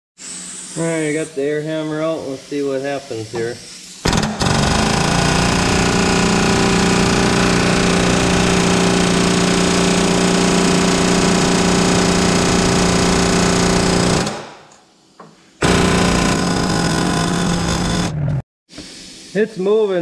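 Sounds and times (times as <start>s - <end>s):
pneumatic air hammer hammering: 3.2s - 18.1s.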